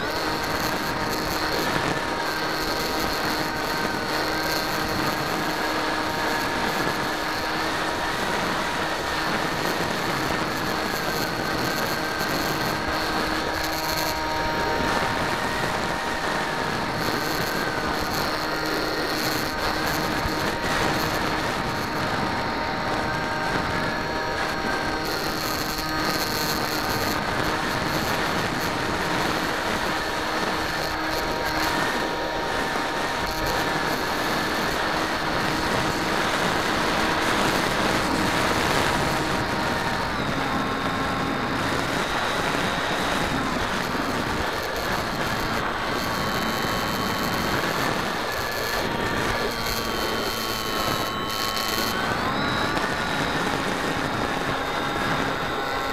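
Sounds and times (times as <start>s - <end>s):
electric motor and propeller whining: 0.0s - 55.9s
wind rushing over microphone: 0.0s - 55.9s.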